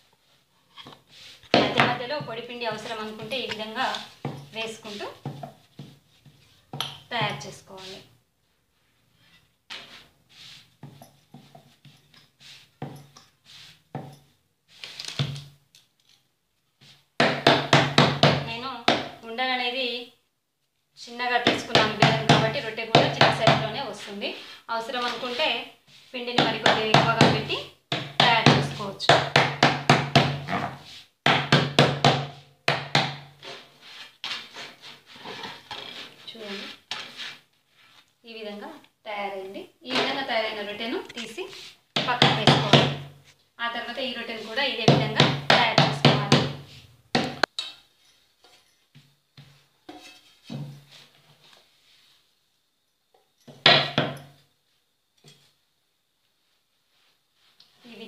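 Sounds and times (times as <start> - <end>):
hand patting dough on wooden board: 26.3 - 30.5, 31.2 - 33.3.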